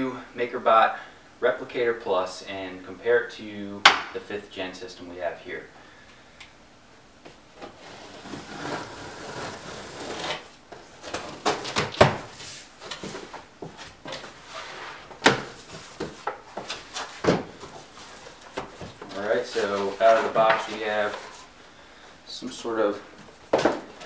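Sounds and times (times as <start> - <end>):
cardboard flaps rubbing and scraping: 7.7 - 21.5.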